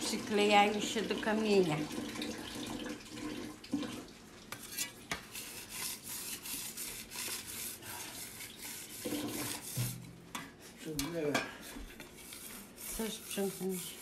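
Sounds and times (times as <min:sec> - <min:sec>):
water running from faucet: 0:00.0 - 0:10.1, 0:12.2 - 0:14.0.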